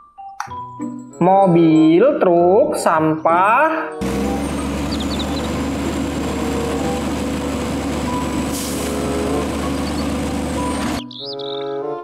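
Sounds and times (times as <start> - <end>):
garbage truck engine humming: 4.0 - 11.2.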